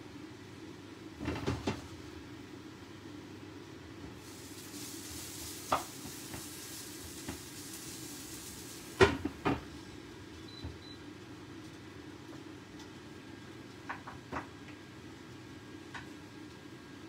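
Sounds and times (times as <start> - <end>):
vegetables sizzling in a frying pan: 4.2 - 9.8.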